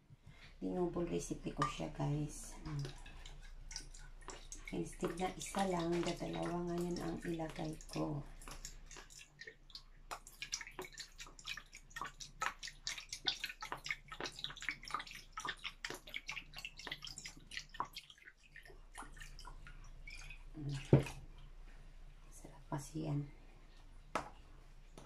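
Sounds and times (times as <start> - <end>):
liquid dripping into plastic cup: 2.5 - 21.5.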